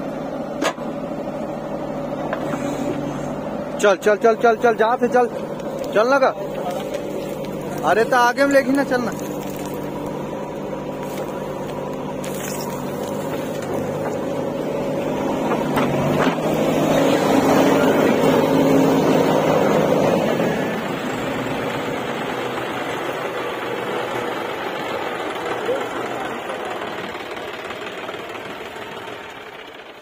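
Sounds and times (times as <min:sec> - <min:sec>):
diesel engine running: 0:00.0 - 0:30.0
tractor engine: 0:00.0 - 0:30.0.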